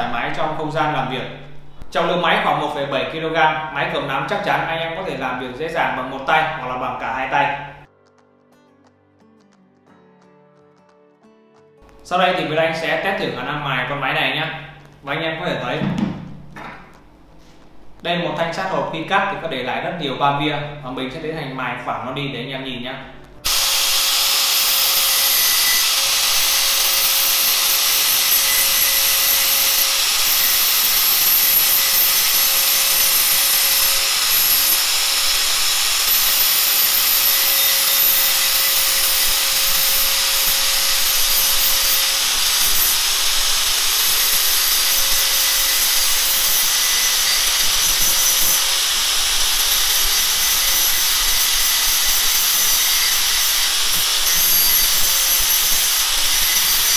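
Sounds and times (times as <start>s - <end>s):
angle grinder grinding metal: 23.4s - 56.9s.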